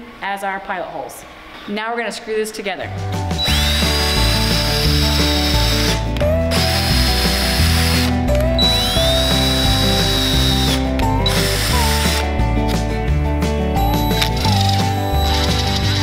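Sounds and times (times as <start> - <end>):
background music with bass: 2.9 - 16.0
cordless drill whining: 3.4 - 12.2, 14.2 - 16.0.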